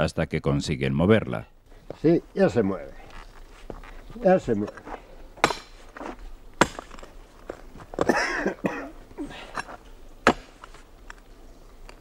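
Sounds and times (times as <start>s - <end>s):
mattock knocking on earth and stone: 5.4s - 8.2s, 10.2s - 11.2s.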